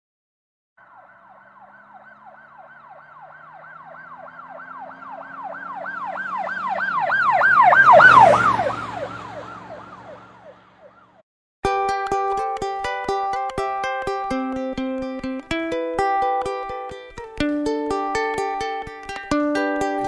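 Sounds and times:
emergency siren sweeping: 0.8 - 11.2
vehicle engine rumbling: 0.8 - 11.2.

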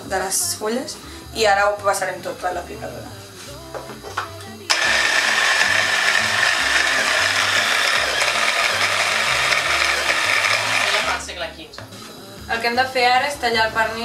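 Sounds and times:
electric food chopper whirring: 4.7 - 11.3.

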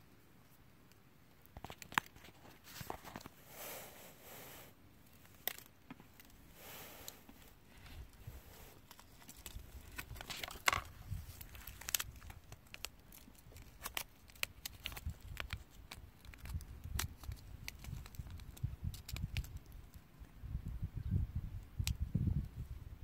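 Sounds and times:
small clicks and crinkling: 0.4 - 3.4, 5.0 - 6.4, 7.0 - 20.1.

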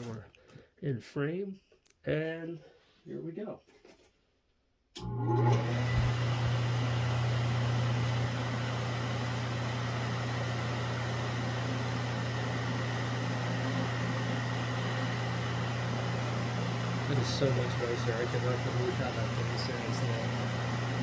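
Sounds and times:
electric fan motor humming: 5.0 - 21.0.

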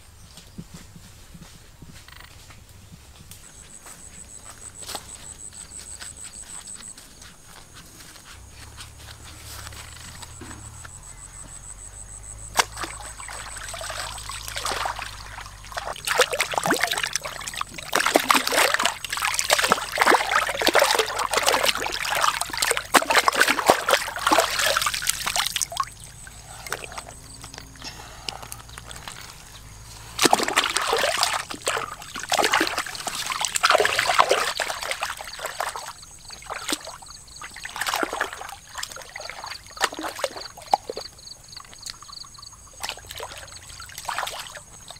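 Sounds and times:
water splashing and sloshing: 4.4 - 44.9.

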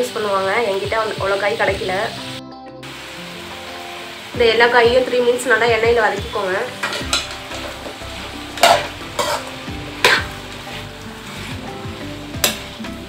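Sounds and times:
vegetables sizzling in oil: 0.0 - 13.0
metal spatula scraping pan: 6.7 - 11.7.

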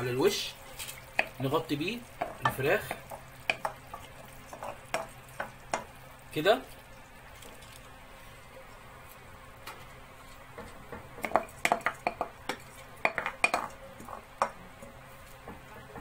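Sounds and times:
wooden spoon knocking on pot: 1.1 - 1.4, 2.2 - 5.9, 10.5 - 16.0.

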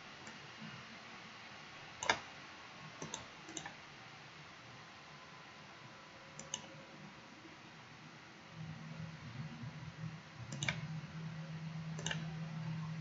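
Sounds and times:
faint steady hiss: 0.0 - 13.0
computer mouse clicking: 2.0 - 2.3, 3.0 - 3.8, 6.4 - 6.7, 10.5 - 10.9, 12.0 - 12.3.

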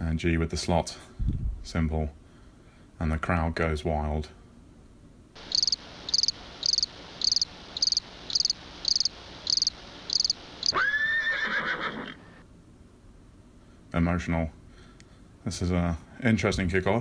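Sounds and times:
cricket chirping: 5.4 - 10.8.

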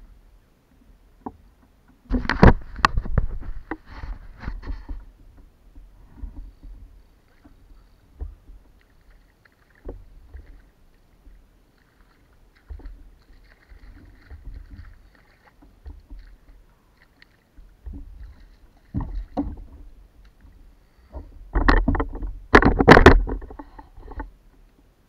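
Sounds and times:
knocks against plastic hull: 2.1 - 3.8, 17.6 - 20.5, 21.2 - 24.2
fish thrashing and splashing: 7.3 - 20.5.

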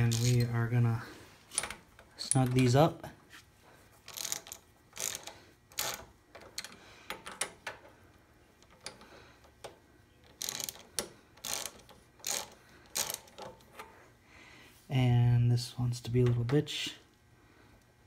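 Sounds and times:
socket ratchet clicking: 4.1 - 7.6, 10.3 - 13.5.

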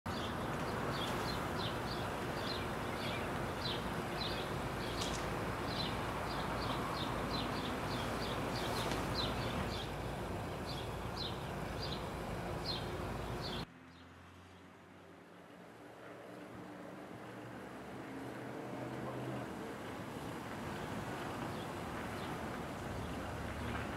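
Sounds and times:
outdoor background rush: 0.1 - 23.9.

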